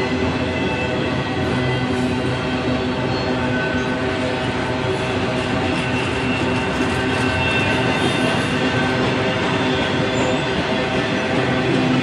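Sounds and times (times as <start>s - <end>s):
steel wheels rumbling on rail: 0.0s - 12.0s
wheels squealing: 5.6s - 12.0s.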